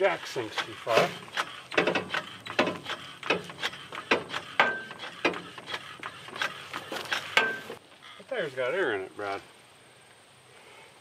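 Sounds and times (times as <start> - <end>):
car jack clicking: 0.6 - 7.8.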